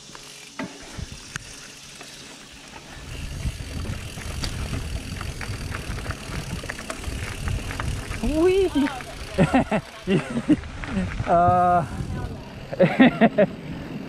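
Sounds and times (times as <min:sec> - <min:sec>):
bike tyres on dirt: 0:00.0 - 0:14.0
wind buffeting microphone: 0:03.0 - 0:12.7.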